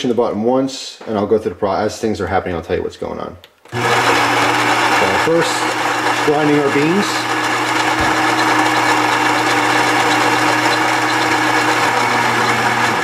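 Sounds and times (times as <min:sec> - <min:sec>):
coffee grinder whirring: 0:03.7 - 0:13.0.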